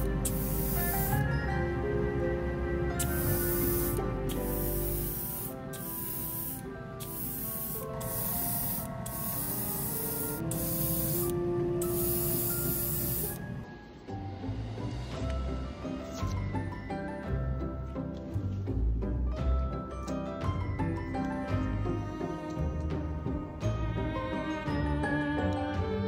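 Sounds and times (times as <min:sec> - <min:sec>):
airbrush spraying bursts: 0:00.0 - 0:01.3, 0:03.0 - 0:13.5
soft background music: 0:00.0 - 0:26.0.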